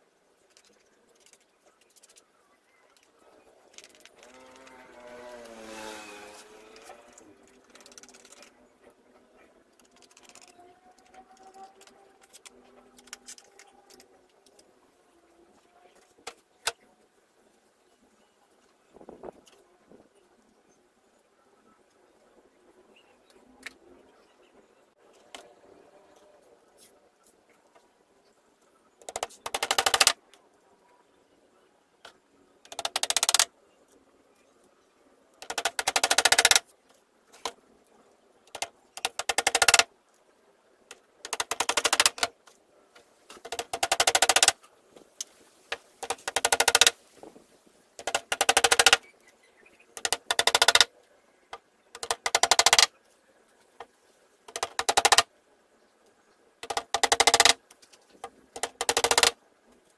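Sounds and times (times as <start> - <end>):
hammer tapping nails into wood: 58.6 - 59.3.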